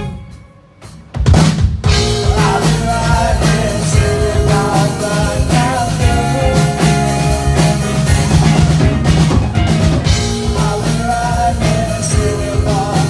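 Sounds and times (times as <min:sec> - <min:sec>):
live rock band playing: 0:00.0 - 0:13.0
person singing lead vocals: 0:01.9 - 0:08.9, 0:10.0 - 0:13.0.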